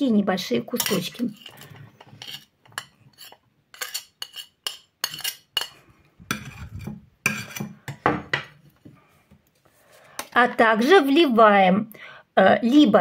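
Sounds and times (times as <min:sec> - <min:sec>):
knife scraping and clinking on plate: 0:00.8 - 0:08.6.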